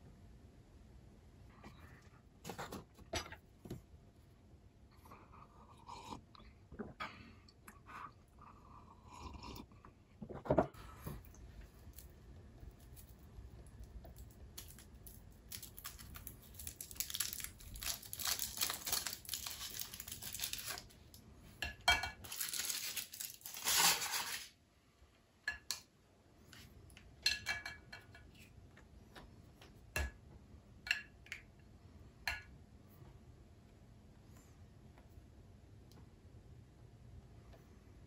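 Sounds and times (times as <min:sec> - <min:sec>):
foil wrapper crinkling and tearing: 0:14.6 - 0:21.0, 0:22.2 - 0:24.6.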